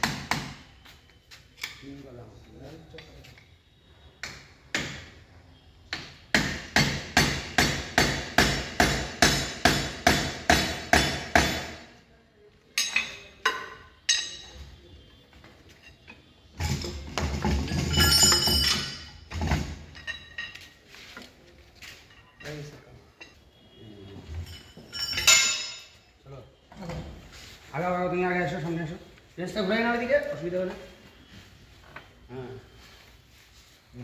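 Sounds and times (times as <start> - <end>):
hammer striking steel: 5.9 - 11.8
metal rattling and clinking: 15.8 - 20.7, 24.4 - 26.0.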